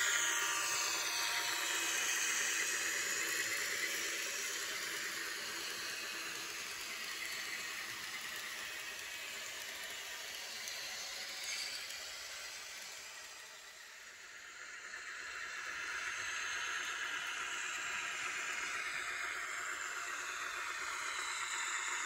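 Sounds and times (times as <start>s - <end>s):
model train engine note: 0.0s - 13.7s.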